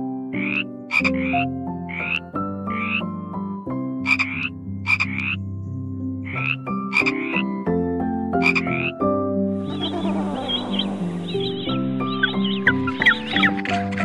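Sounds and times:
background music sustained notes: 0.0s - 14.0s
frog croaking: 0.4s - 3.1s, 4.0s - 5.4s, 6.2s - 7.6s, 8.4s - 9.0s, 9.7s - 14.0s.

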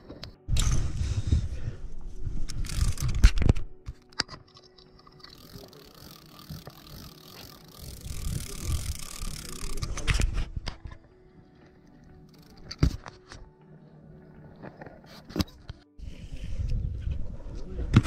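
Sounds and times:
fishing reel whirring: 2.4s - 3.4s, 5.0s - 10.0s
wind rumble: 16.0s - 18.0s.

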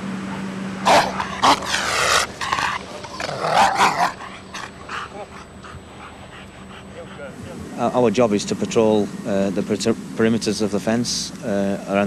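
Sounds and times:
dog barking and growling: 0.8s - 6.1s.

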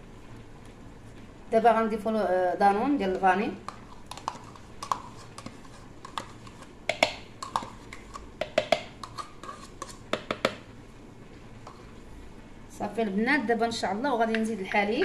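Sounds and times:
plastic pot clicks and taps: 6.9s - 7.7s, 8.4s - 8.9s, 10.1s - 10.6s.

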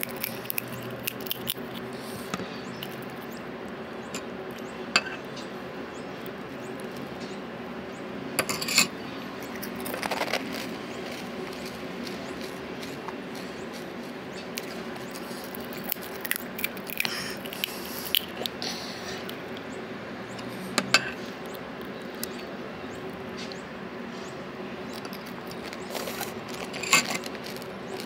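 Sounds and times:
crisp puris being handled: 0.0s - 2.0s, 9.5s - 19.4s, 24.9s - 28.0s
steady low hum: 0.0s - 28.0s.

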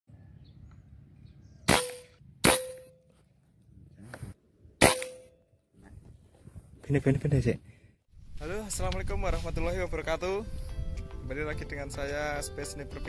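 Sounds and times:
air rifle shots ringing: 1.7s - 3.0s, 4.8s - 5.4s.

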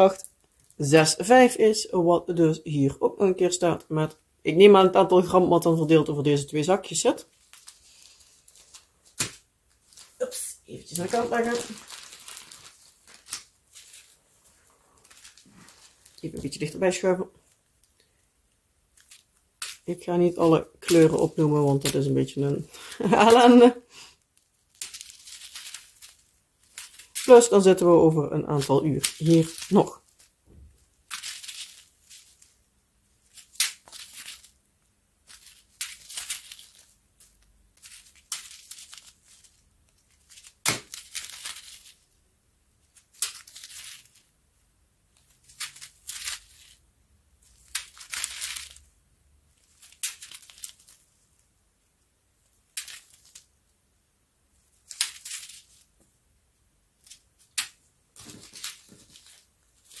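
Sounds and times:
plastic bags crinkling: 7.1s - 18.1s, 18.9s - 34.6s, 35.2s - 42.1s, 42.8s - 44.4s, 45.1s - 51.4s, 57.0s - 60.0s.

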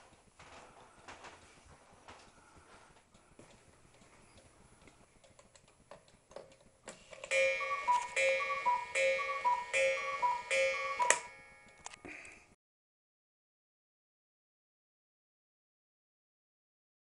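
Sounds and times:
clock mechanism clicks: 3.1s - 12.0s
cuckoo clock calling: 7.3s - 12.0s.

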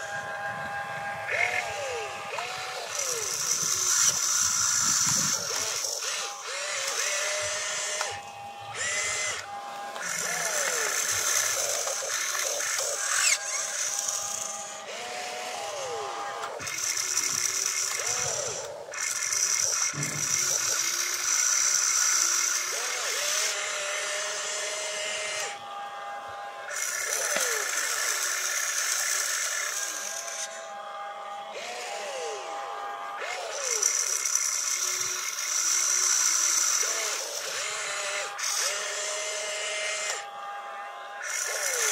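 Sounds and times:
electric motors whining: 0.0s - 41.9s.

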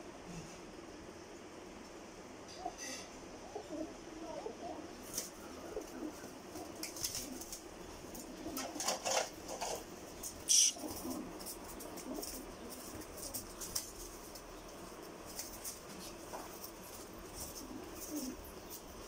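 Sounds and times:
pigeons cooing: 2.6s - 19.0s
pigeon wing flaps and claps: 6.6s - 14.5s.

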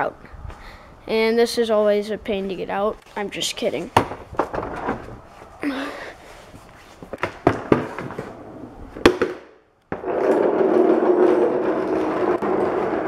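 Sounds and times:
casters rolling on concrete: 3.7s - 5.6s, 6.4s - 13.0s.

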